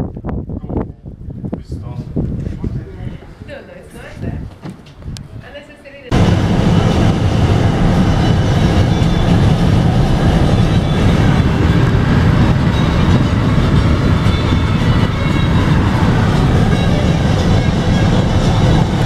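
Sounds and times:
car interior road and wind noise: 0:06.1 - 0:19.0.

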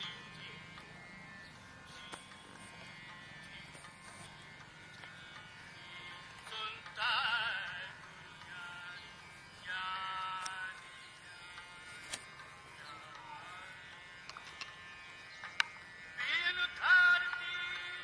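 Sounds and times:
background music: 0:00.0 - 0:18.0
sharp clicks: 0:01.9 - 0:05.5, 0:10.1 - 0:13.3, 0:13.9 - 0:14.8, 0:15.4 - 0:15.8.

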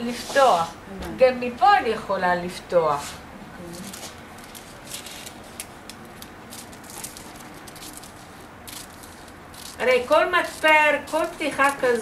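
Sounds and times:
paper crackling: 0:03.7 - 0:12.0
scissors snipping paper: 0:03.8 - 0:12.0.

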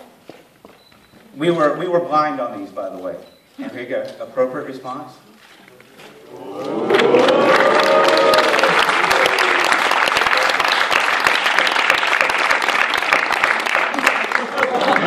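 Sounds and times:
voices whooping and cheering: 0:06.2 - 0:09.9
audience applause: 0:06.2 - 0:15.0.

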